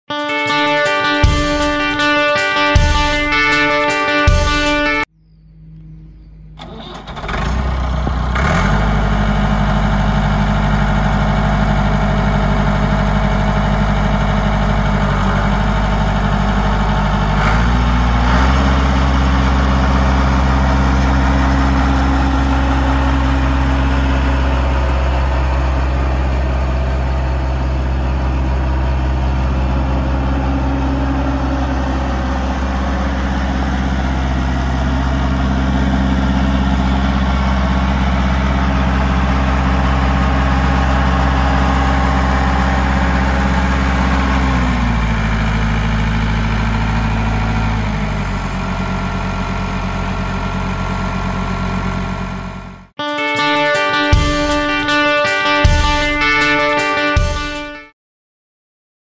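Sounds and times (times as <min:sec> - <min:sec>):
tractor diesel engine running: 0:00.2 - 0:55.1.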